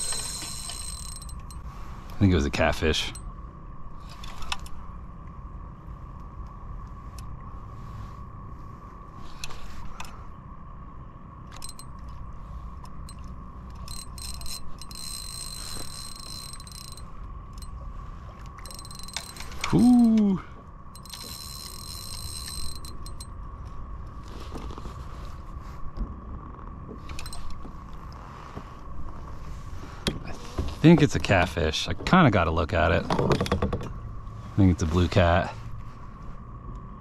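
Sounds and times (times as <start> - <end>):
fishing reel whirring: 0.0 - 1.6, 13.0 - 17.7, 18.6 - 20.2, 21.0 - 23.3.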